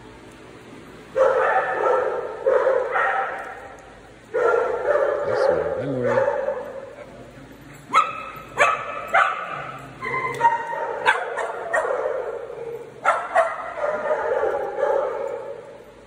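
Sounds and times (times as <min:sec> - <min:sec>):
dogs whining: 0:06.9 - 0:14.8
small dogs yipping: 0:07.8 - 0:15.2.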